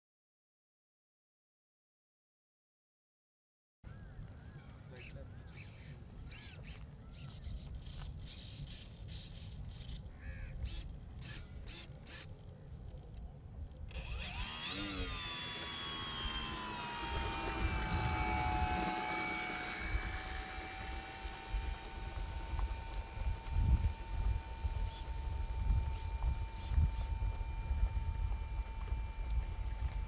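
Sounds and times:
electric propeller motor whining: 0:05.5 - 0:13.2, 0:13.8 - 0:30.0.

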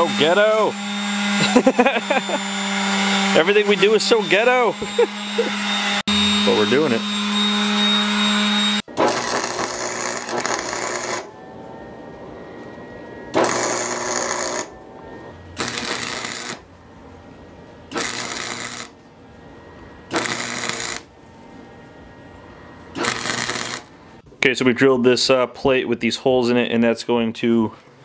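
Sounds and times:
steady hum: 0:03.5 - 0:24.4
welder crackling and spattering: 0:09.0 - 0:11.3, 0:13.4 - 0:14.7, 0:15.6 - 0:16.6, 0:17.9 - 0:19.0, 0:20.1 - 0:21.1, 0:23.0 - 0:24.0.

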